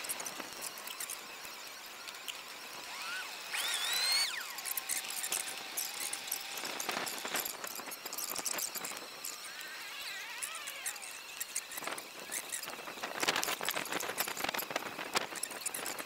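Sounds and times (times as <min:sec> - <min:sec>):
high squeal: 0:02.7 - 0:13.2.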